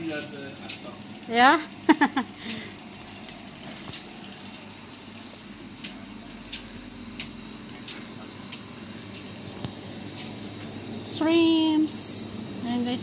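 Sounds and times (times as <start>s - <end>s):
cooling and ventilation hum: 0.0s - 13.0s.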